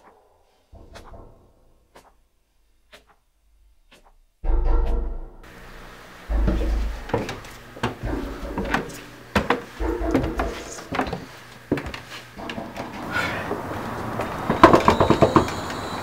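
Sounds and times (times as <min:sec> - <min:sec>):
footsteps on wooden stairs: 0:05.5 - 0:15.9.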